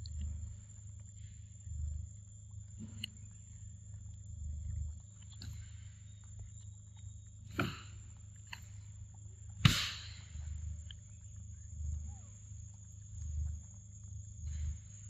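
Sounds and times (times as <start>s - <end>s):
low hum: 0.0s - 15.0s
steady high whine: 0.0s - 15.0s.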